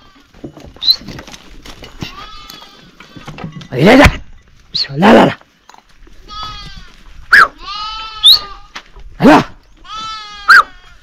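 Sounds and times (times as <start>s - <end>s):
sheep and goats bleating: 0.0s - 1.1s, 1.8s - 3.9s, 6.1s - 11.0s.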